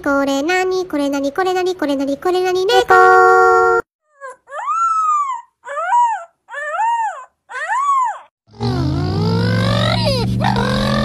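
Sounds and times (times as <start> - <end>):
puppy yelping and howling: 4.5 - 8.3.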